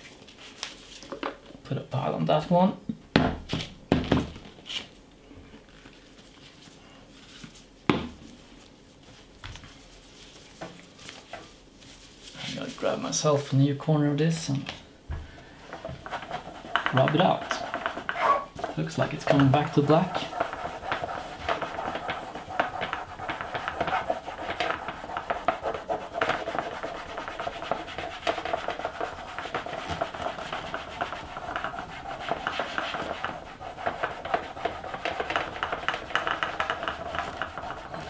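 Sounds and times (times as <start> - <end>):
cloth rubbing on plastic: 15.9 - 38.0.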